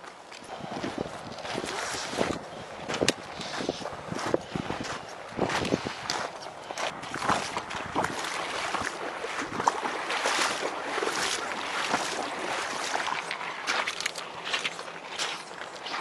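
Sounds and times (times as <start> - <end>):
footsteps on gravel: 0.0 - 16.0
footsteps splashing in shallow water: 0.0 - 16.0
wind on microphone: 0.5 - 10.8.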